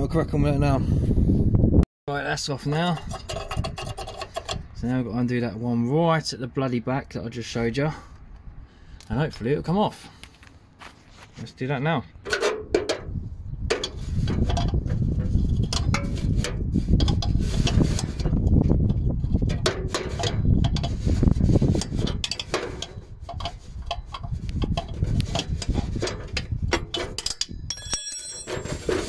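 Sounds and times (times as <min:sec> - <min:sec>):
metallic tool clicks and knocks: 0:26.7 - 0:28.6.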